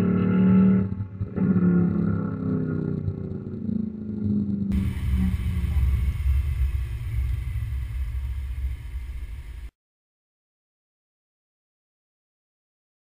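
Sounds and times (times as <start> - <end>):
low rumble: 0.4 - 9.7
car exhaust passing by: 4.7 - 9.7
steady hiss: 4.7 - 9.7.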